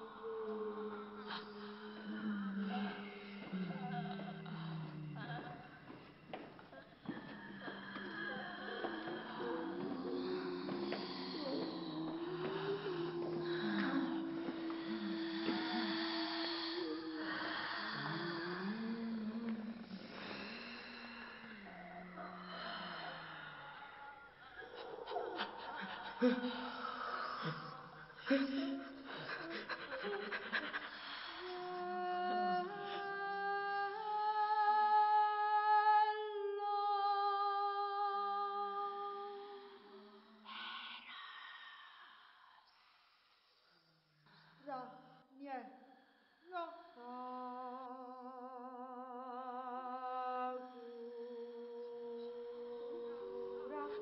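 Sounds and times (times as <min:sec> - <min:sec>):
women humming held tone: 0:00.0 - 0:06.0, 0:07.0 - 0:20.6, 0:31.4 - 0:36.0, 0:46.5 - 0:54.0
women's breathy panting vocals: 0:00.0 - 0:33.1.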